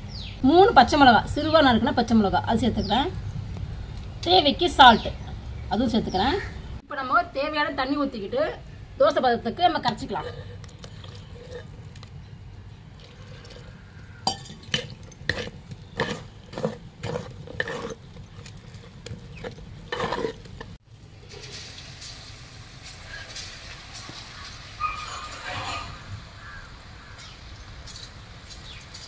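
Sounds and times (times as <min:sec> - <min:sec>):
spoon stirring in metal pot: 0:14.3 - 0:20.8
hot oil sizzling: 0:20.8 - 0:29.0.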